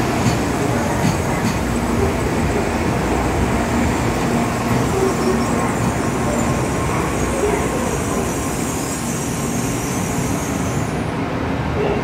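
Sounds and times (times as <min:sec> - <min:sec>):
train rumbling: 0:00.0 - 0:12.0.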